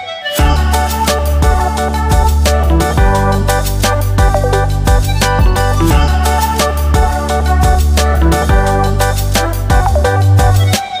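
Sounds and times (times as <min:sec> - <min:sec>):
music with heavy bass: 0:00.4 - 0:11.0.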